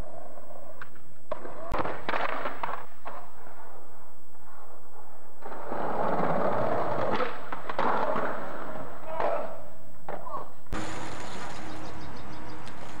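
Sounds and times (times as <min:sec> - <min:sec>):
skateboard wheels rolling on concrete: 0:00.0 - 0:13.0
skateboard clattering on concrete: 0:05.4 - 0:09.4.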